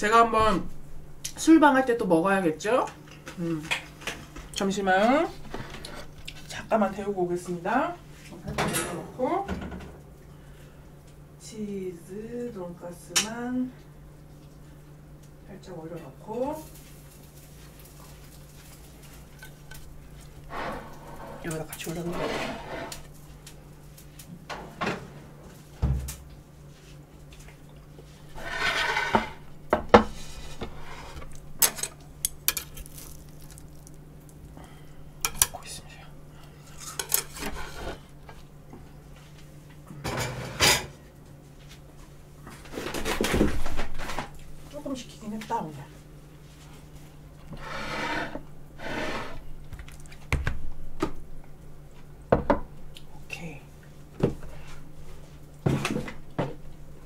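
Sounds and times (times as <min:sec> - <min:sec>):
tray scraping slide: 0:20.5 - 0:23.0, 0:28.4 - 0:29.4, 0:47.5 - 0:49.4
chopsticks clinking on metal rack: 0:31.6 - 0:33.0.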